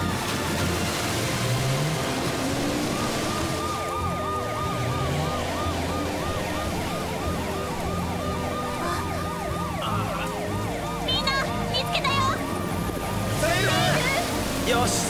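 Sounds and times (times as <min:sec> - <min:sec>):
cartoon siren yelping: 0:02.8 - 0:12.6, 0:13.4 - 0:14.3.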